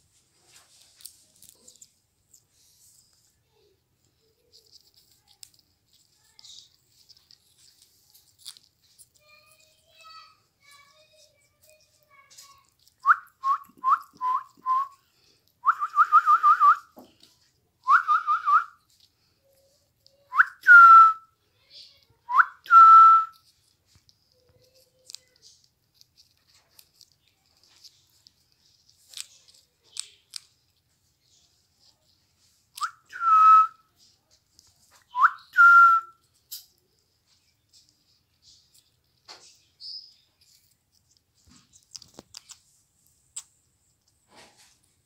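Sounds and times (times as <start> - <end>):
whistling: 13.0 - 15.0, 15.6 - 17.0, 17.8 - 18.8, 20.3 - 21.3, 22.3 - 23.5, 32.8 - 33.9, 35.1 - 36.3.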